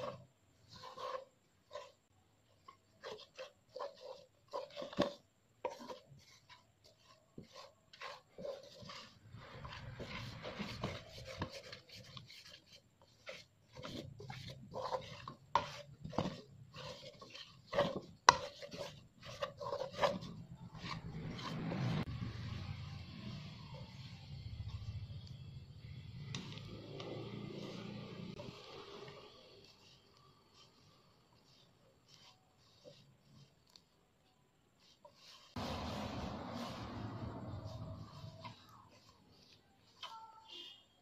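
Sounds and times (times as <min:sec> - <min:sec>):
spatula scraping a saucepan: 0:00.0 - 0:25.2, 0:25.8 - 0:33.8, 0:34.7 - 0:41.0.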